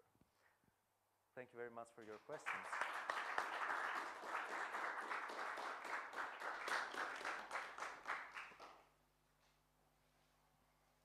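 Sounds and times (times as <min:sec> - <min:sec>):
audience applauding: 0:02.1 - 0:08.8.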